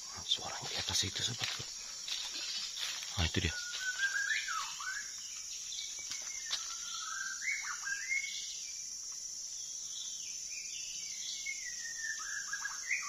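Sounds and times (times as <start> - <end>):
high insect drone: 0.0 - 13.0
bird singing whistled phrases: 3.5 - 5.1, 6.3 - 8.5, 11.4 - 13.0.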